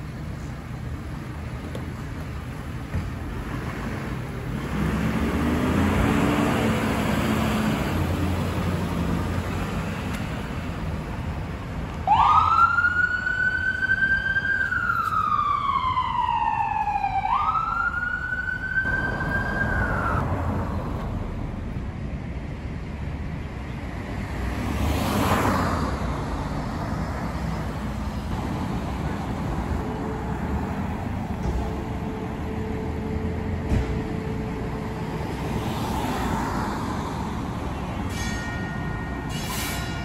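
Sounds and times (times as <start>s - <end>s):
siren wailing: 12.0s - 20.4s.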